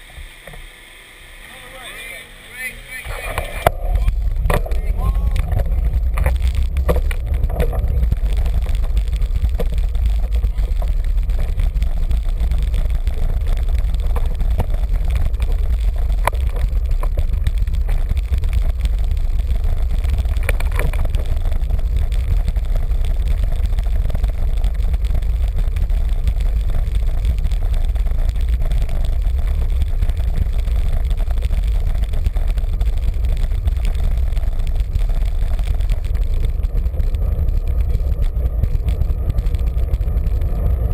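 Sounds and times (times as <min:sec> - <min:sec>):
tyre and road noise: 0:00.0 - 0:40.9
wind buffeting microphone: 0:03.0 - 0:40.9
sharp knocks from road bumps: 0:03.6 - 0:11.8.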